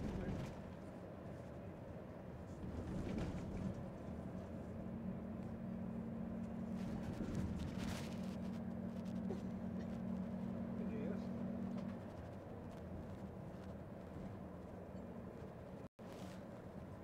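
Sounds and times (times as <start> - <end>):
road rumble: 0.0 - 17.0
car engine hum: 2.7 - 15.9.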